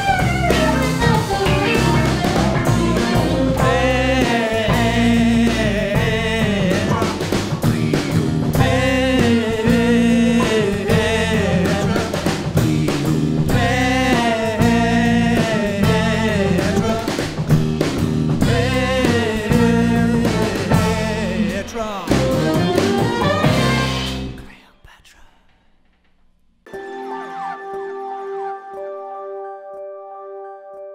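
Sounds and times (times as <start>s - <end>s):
saxophone melody: 0.0s - 5.4s, 8.6s - 12.6s, 22.2s - 24.4s, 26.7s - 30.9s
rock band playing live: 0.0s - 24.4s.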